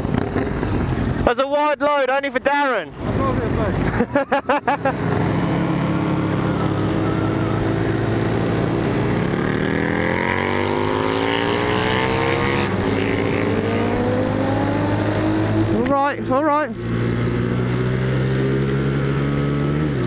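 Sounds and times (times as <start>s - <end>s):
motorcycle engine accelerating: 0.0s - 1.2s, 4.4s - 20.0s
rushing wind: 2.3s - 20.0s.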